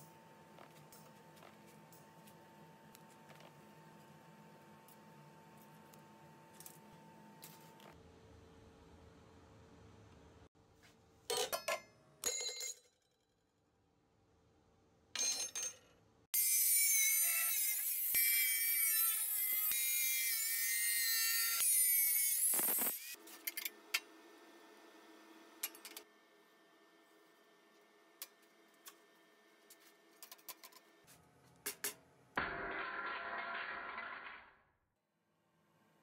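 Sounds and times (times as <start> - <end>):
angle grinder cutting steel: 16.4 - 23.2.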